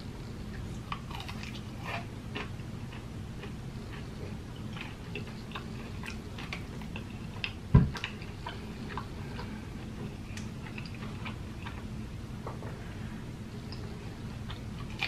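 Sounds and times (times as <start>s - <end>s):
chewing crispy fried chicken: 0.4s - 11.9s.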